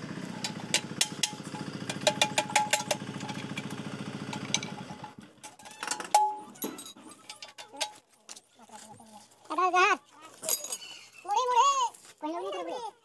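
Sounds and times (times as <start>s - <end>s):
engine idling: 0.0s - 7.6s
metal clank ringing: 0.3s - 8.0s
spanners clinking on metal: 0.3s - 8.6s, 10.4s - 11.2s.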